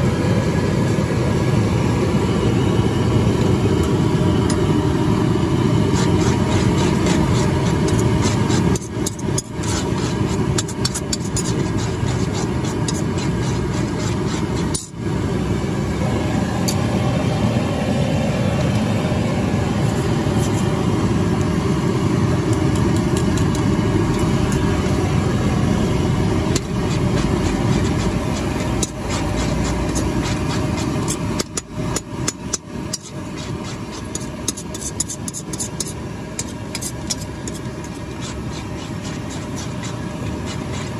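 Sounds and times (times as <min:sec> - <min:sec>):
gas burner roaring: 0:00.0 - 0:40.9.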